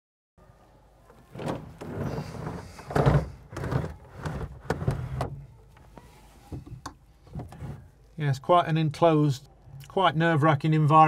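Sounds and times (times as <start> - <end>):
canopy sliding rattles and knocks: 1.3 - 5.4.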